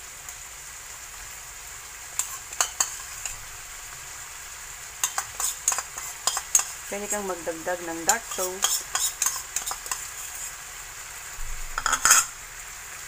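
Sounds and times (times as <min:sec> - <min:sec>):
chicken sizzling in frying pan: 0:00.0 - 0:13.0
metal spoon clicking on pan: 0:02.2 - 0:03.4, 0:05.0 - 0:06.8, 0:08.1 - 0:10.1, 0:11.8 - 0:12.3.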